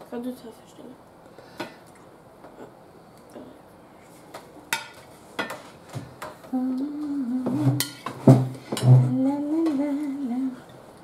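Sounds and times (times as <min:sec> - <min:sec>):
person humming: 0:06.5 - 0:07.8, 0:08.8 - 0:10.7
dishes knocking on table: 0:07.5 - 0:09.1.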